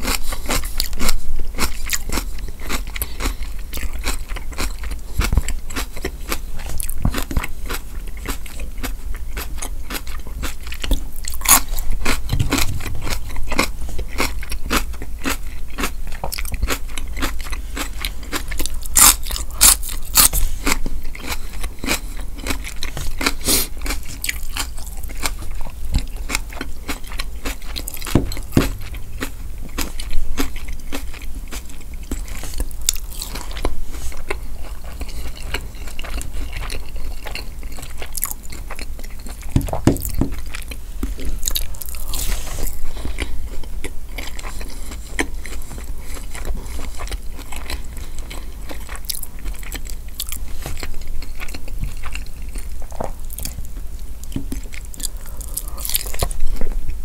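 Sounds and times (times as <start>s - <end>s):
chewing crunchy celery: 0.0s - 57.0s
mouth sounds: 11.7s - 14.9s.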